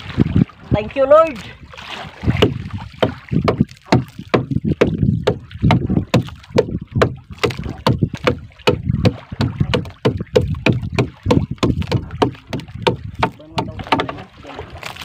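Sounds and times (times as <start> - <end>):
water sloshing: 0.0 - 15.0
knocks against wooden boat hull: 2.4 - 14.3.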